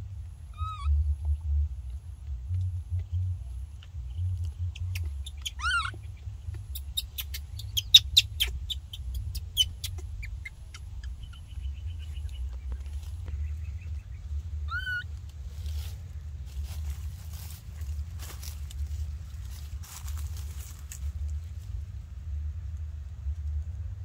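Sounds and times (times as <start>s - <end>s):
baby macaque squealing: 0.5s - 0.9s, 4.7s - 11.6s, 14.7s - 15.1s.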